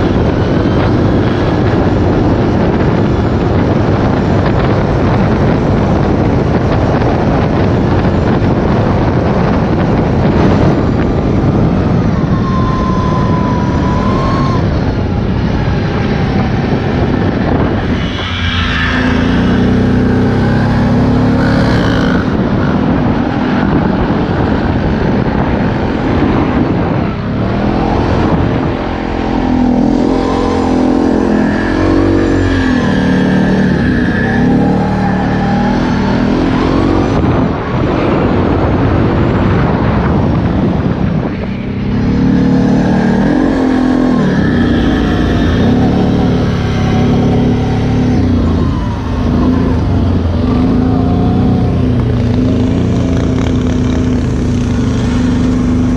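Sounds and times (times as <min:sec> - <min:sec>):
other quad engines running: 0:00.0 - 0:55.9
atv engine revving: 0:09.1 - 0:39.1, 0:41.6 - 0:55.9.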